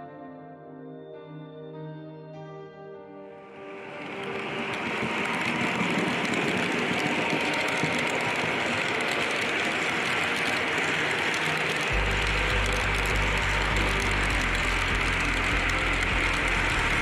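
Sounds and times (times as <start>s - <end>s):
model train wheels rolling on rail: 3.8s - 17.0s
fine clicks of wheels: 4.0s - 17.0s.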